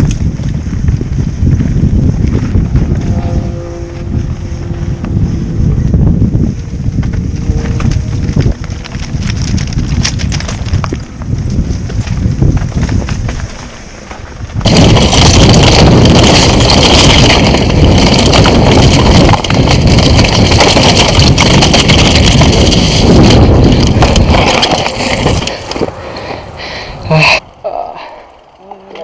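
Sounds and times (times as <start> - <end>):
bike rattling and clattering: 0.0 - 26.9
wind rushing over microphone: 0.0 - 27.6
tyres crunching on stones: 6.8 - 26.6.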